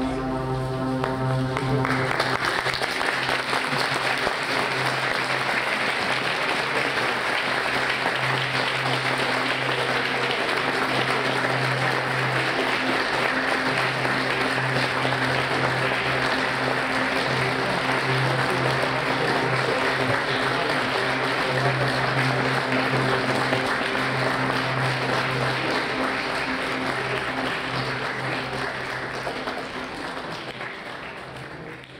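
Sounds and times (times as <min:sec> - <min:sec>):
low sustained musical note: 0:00.0 - 0:30.6
held musical chord: 0:00.0 - 0:31.2
audience applauding: 0:00.0 - 0:31.9.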